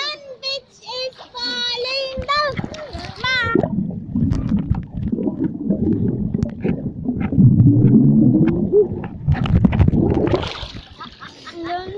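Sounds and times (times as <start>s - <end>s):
underwater rumbling water: 2.2s - 11.0s
bubbles crackling: 2.4s - 11.0s
muffled pitched sound: 3.4s - 10.5s.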